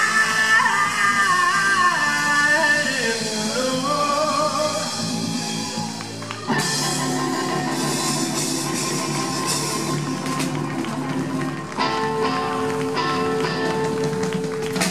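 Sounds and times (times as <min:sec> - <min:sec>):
man singing: 0:00.0 - 0:05.0
drums and cymbals: 0:00.0 - 0:14.9
electric guitar: 0:00.0 - 0:14.9.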